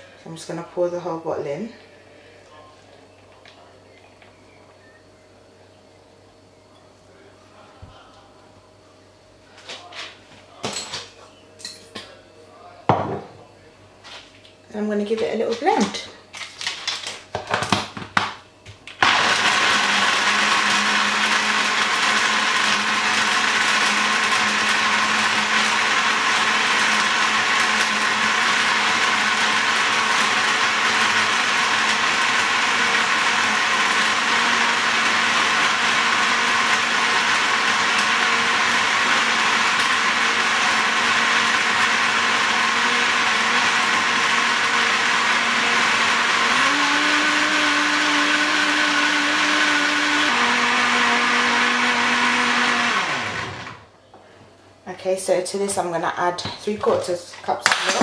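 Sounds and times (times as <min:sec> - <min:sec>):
blender motor running: 0:19.0 - 0:53.9.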